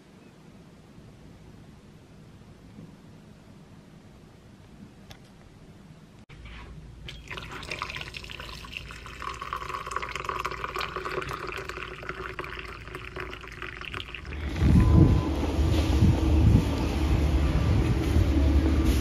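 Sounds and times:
water pouring into glass mug: 7.1s - 14.4s.

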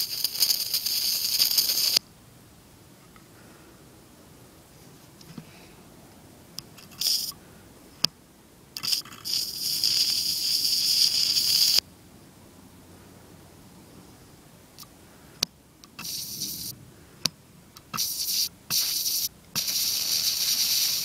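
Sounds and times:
electric arc crackling sputters: 0.0s - 2.0s, 6.8s - 7.4s, 8.8s - 11.8s, 16.0s - 16.8s, 17.9s - 21.0s
hissing electric arc: 0.0s - 2.0s, 6.8s - 7.4s, 8.8s - 11.8s, 16.0s - 16.8s, 17.9s - 21.0s
sharp click: 14.8s - 19.1s.

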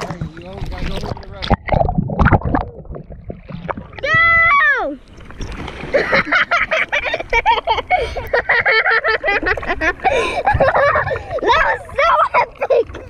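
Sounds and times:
water splashing and sloshing: 0.0s - 13.0s
person yelling: 4.0s - 5.0s.

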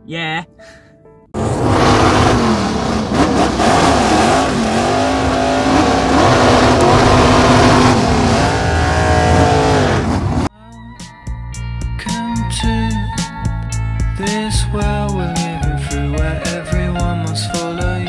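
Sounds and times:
car engine revving: 1.4s - 10.5s.

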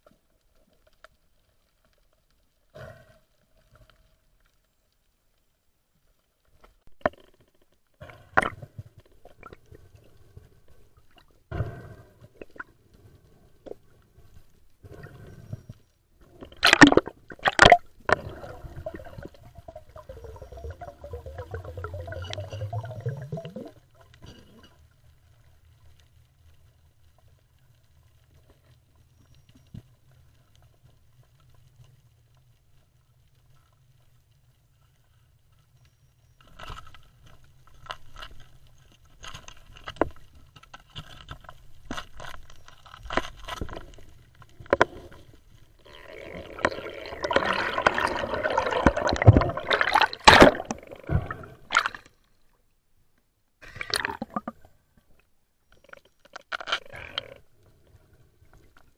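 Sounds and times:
rush of bubbles: 16.4s - 24.0s, 45.9s - 52.1s, 53.6s - 54.6s.

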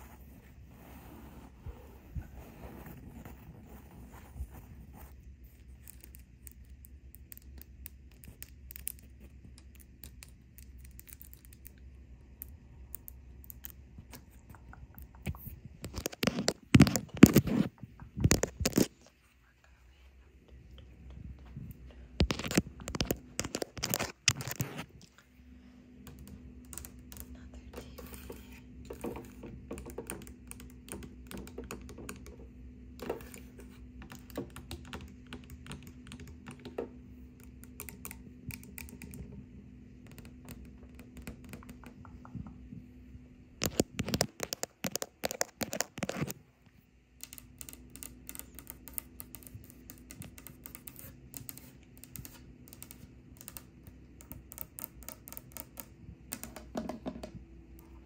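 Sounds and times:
faint steady hum: 0.0s - 58.0s
fingernails tapping plastic buttons: 26.1s - 33.4s
fingernails tapping on a desk: 27.8s - 33.4s, 54.2s - 57.4s.

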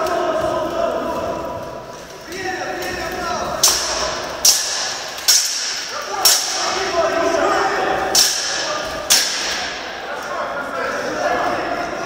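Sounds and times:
crowd chatter: 0.0s - 12.0s
steel swords clashing: 3.6s - 7.0s, 8.1s - 10.0s.

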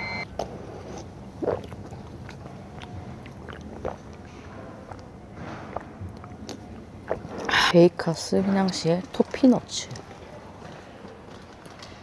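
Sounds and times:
chewing bread: 0.8s - 7.5s.

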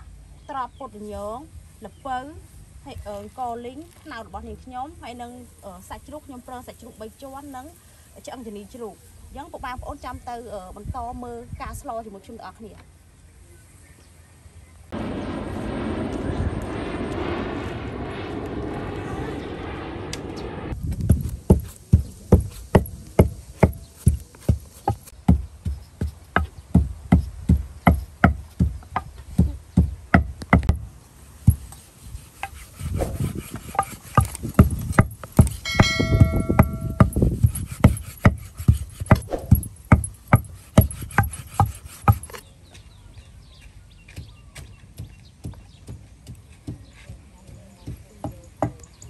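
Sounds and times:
brief ringing tone: 35.7s - 37.2s.

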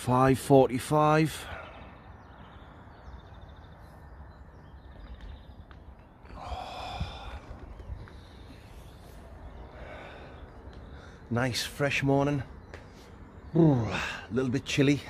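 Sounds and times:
low rumble of road traffic: 0.0s - 15.0s
breathy sigh: 6.3s - 7.7s.

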